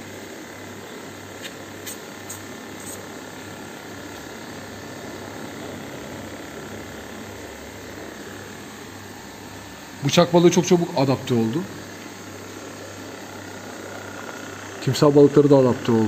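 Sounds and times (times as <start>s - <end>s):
low electrical hum: 0.0s - 16.0s
hiss of moving water and air: 1.4s - 3.2s.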